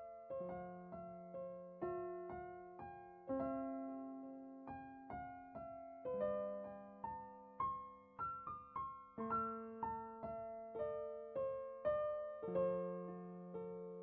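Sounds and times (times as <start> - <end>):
gentle piano melody: 0.0 - 14.0.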